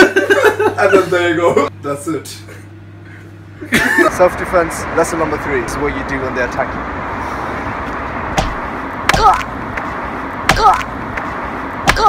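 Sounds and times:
steady background noise: 0.0s - 12.0s
sharp smacks of strikes: 8.4s - 9.5s, 10.5s - 11.3s
person shouting: 9.1s - 9.5s, 10.5s - 10.9s.

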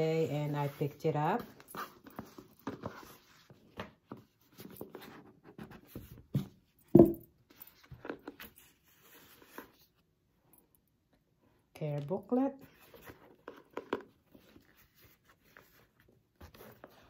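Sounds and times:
thump on table: 6.9s - 7.3s.

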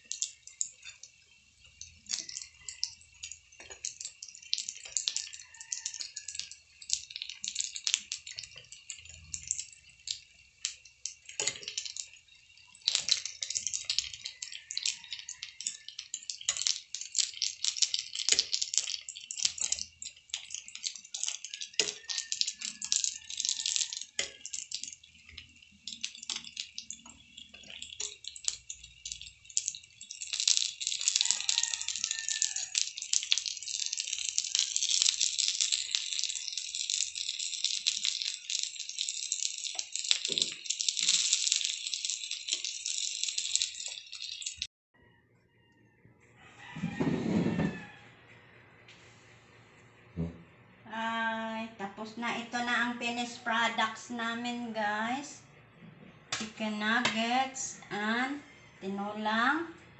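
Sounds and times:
oil crackling and spitting: 0.0s - 44.7s.

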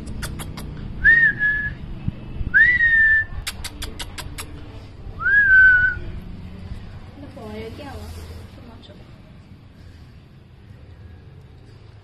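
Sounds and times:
sharp clicking sounds: 0.0s - 0.8s, 3.4s - 4.6s
person whistling: 1.0s - 1.8s, 2.6s - 3.3s, 5.2s - 6.0s.

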